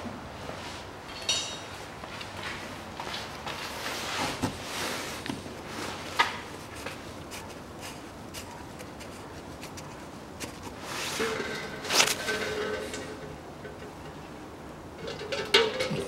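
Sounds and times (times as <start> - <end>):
gloved hand clicks and rustling: 6.2 - 10.8.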